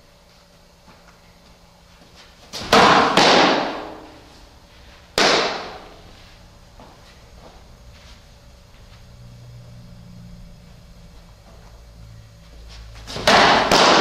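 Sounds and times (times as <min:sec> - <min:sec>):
softball striking target: 0:02.6 - 0:04.2, 0:05.2 - 0:06.0, 0:13.1 - 0:14.0.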